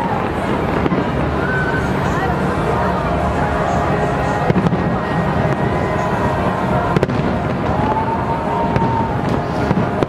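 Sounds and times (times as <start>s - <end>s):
fireworks rumble and crackle: 0.0s - 10.0s
sharp firework bangs: 6.9s - 10.0s.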